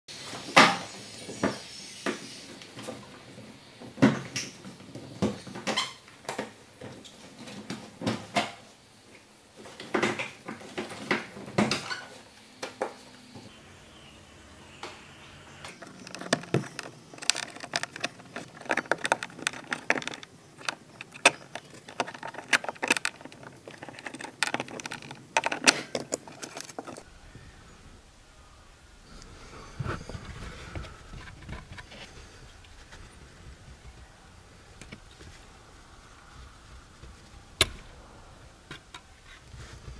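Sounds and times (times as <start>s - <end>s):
plastic trim clicking and rattling: 15.7s - 27.0s.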